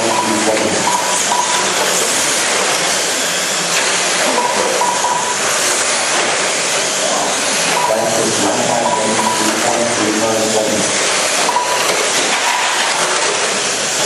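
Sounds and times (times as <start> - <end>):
rushing hiss of rc car motors: 5.3 - 7.8, 10.9 - 14.0.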